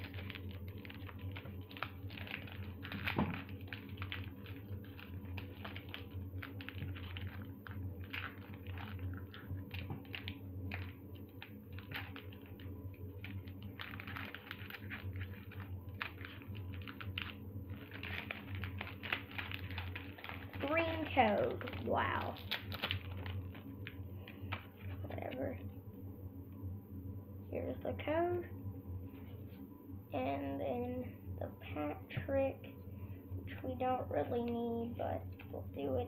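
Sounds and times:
foil wrapper tearing and crinkling: 0.0s - 25.0s
low steady hum: 0.0s - 36.0s.

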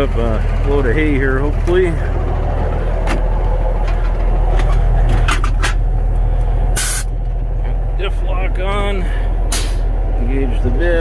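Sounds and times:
truck diesel engine running: 0.0s - 11.0s
air hiss burst: 6.8s - 7.1s.

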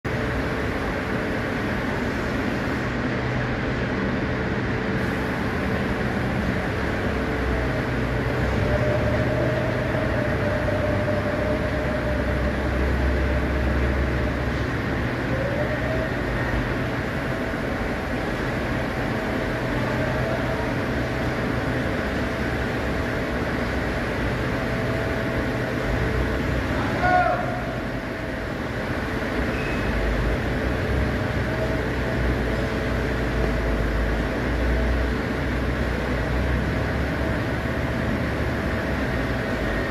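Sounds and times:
mechanical rumble with low hum: 0.0s - 39.9s.

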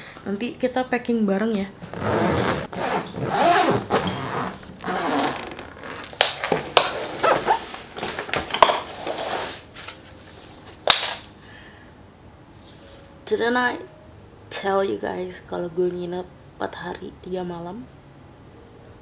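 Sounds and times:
suitcase zipper rasping: 1.8s - 6.2s, 6.8s - 7.9s
suitcase clicks and knocks: 1.8s - 8.9s.

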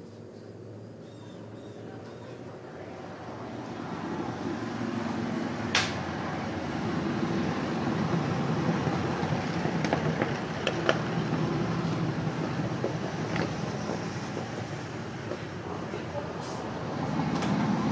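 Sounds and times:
motorcycles passing: 1.4s - 17.9s.

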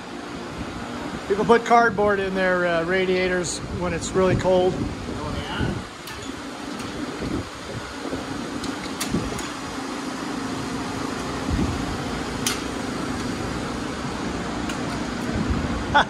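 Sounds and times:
shop machinery humming: 0.0s - 16.0s
light metal clicks: 12.4s - 13.4s.

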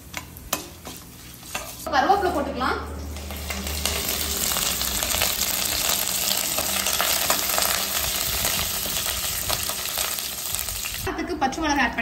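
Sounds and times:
food sizzling and popping in oil: 0.0s - 1.9s, 2.9s - 11.1s
metal ladle scraping a pan: 0.5s - 1.9s.

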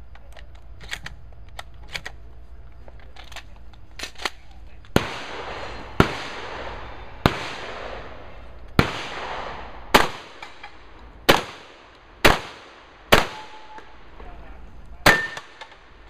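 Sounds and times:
shotgun shots echoing: 5.0s - 14.1s, 15.0s - 16.0s.

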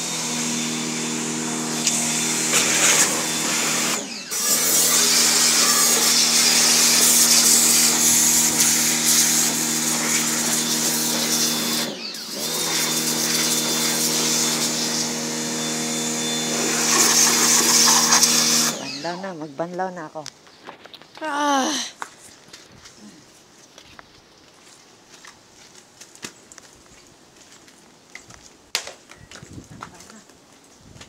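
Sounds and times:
pressure washer motor humming: 0.0s - 19.3s
water jet hissing: 1.8s - 15.2s, 16.4s - 19.2s.

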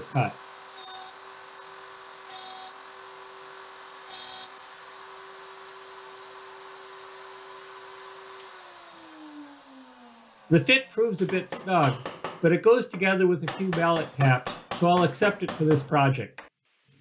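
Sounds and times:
router running high-pitched hum: 0.0s - 11.9s
router bit cutting wood hiss: 0.0s - 12.4s.

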